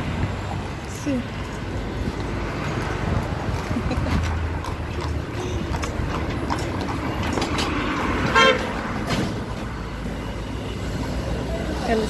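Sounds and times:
street noise: 0:00.0 - 0:12.0
vehicle horn toot: 0:08.3 - 0:08.7.

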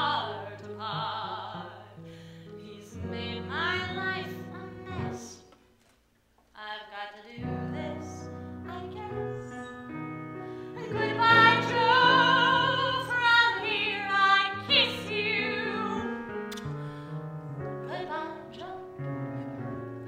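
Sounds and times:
woman singing: 0:00.0 - 0:02.0, 0:02.6 - 0:05.5, 0:06.6 - 0:09.6, 0:10.8 - 0:16.2, 0:17.8 - 0:19.0
piano accompaniment: 0:00.0 - 0:05.5, 0:07.4 - 0:20.0.

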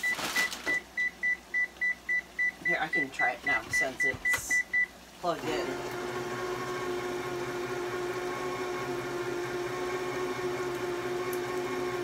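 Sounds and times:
electric can opener humming: 0:05.2 - 0:12.0.

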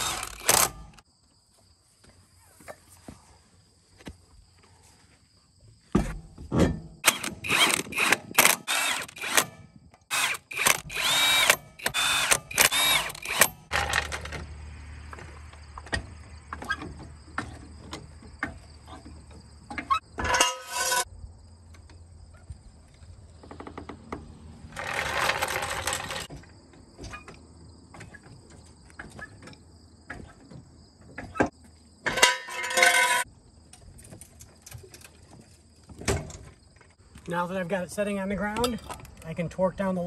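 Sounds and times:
clicks and clanks: 0:23.4 - 0:27.4, 0:31.2 - 0:37.3, 0:38.5 - 0:39.3.

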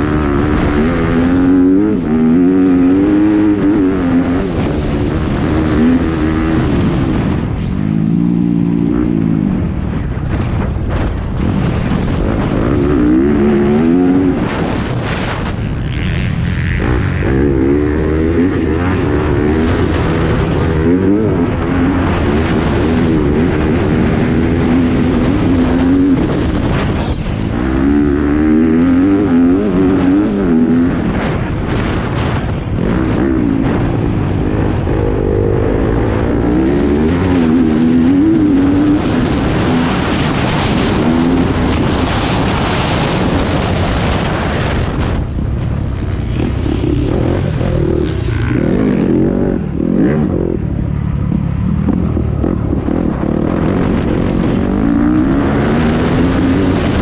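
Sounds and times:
dirt bike engine revving: 0:00.0 - 0:57.0
wind noise: 0:00.0 - 0:57.0.

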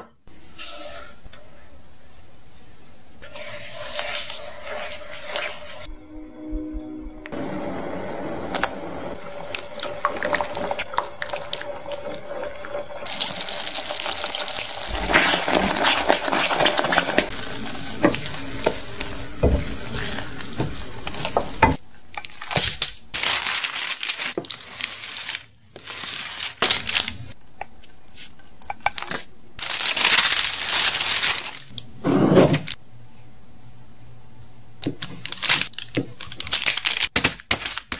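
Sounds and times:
spatula scraping a pan: 0:00.5 - 0:01.3
puree bubbling: 0:08.3 - 0:18.6.

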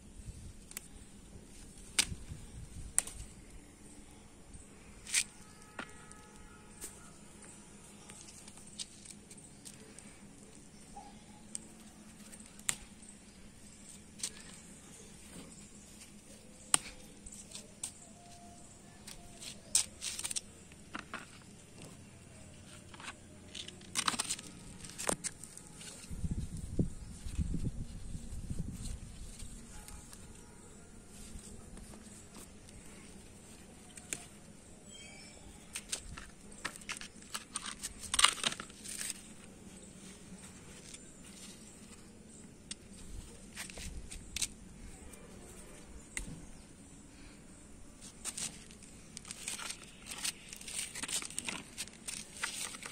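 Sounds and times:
faint steady hum: 0:00.0 - 0:52.9
handling clicks and rustles: 0:05.0 - 0:26.2, 0:35.6 - 0:46.6, 0:48.0 - 0:52.9.

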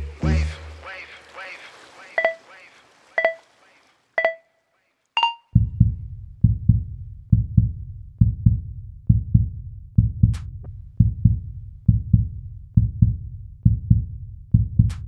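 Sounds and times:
timer beeps: 0:02.2 - 0:02.4, 0:03.2 - 0:03.4, 0:04.2 - 0:04.5, 0:05.2 - 0:05.6
background music drum beat: 0:04.2 - 0:04.4, 0:05.2 - 0:15.0.

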